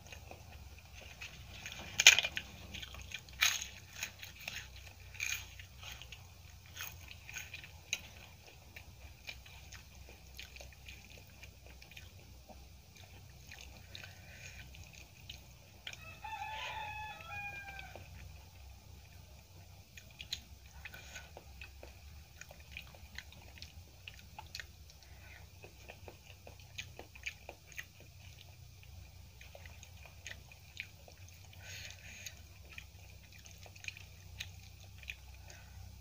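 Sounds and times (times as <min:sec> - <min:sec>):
rooster crowing: 0:15.8 - 0:18.3.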